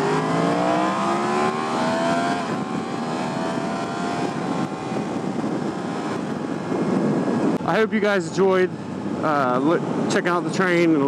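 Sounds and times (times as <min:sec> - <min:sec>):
motorcycle engine accelerating: 0:00.0 - 0:07.6
wind and road noise: 0:00.0 - 0:11.0.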